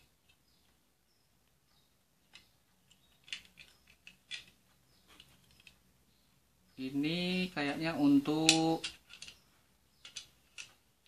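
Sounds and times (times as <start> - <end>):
plastic parts clicking: 2.2 - 5.8, 8.3 - 11.0.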